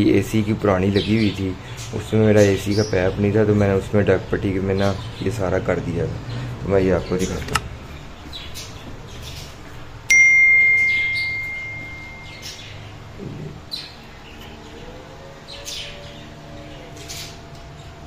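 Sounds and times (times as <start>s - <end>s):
notification bell ding: 10.1s - 12.7s.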